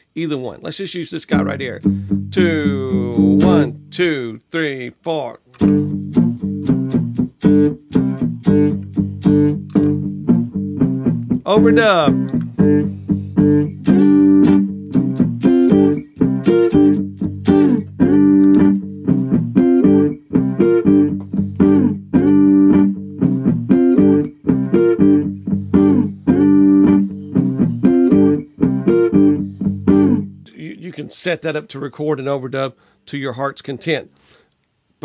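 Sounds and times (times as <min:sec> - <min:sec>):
overdubbed guitar: 0:01.3 - 0:04.3, 0:05.5 - 0:31.4
looped plucked guitar phrase: 0:01.3 - 0:04.4, 0:05.6 - 0:30.5.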